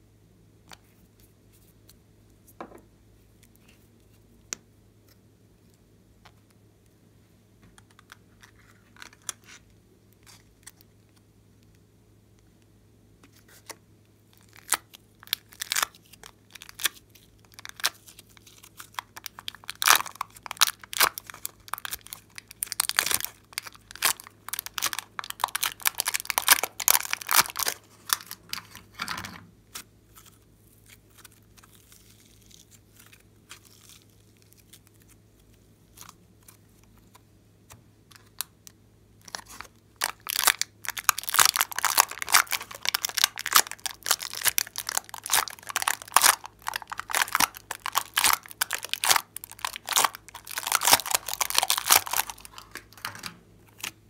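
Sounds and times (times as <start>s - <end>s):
plastic tray crinkling: 18.8s - 29.4s, 39.3s - 54.0s
small containers clicking: 40.0s - 53.4s.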